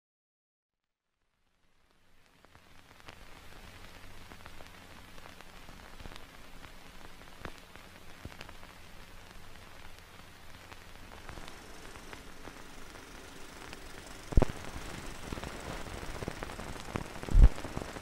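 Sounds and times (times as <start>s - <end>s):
crackles: 1.1s - 18.0s
steady hiss: 1.5s - 18.0s
low hum: 9.2s - 18.0s.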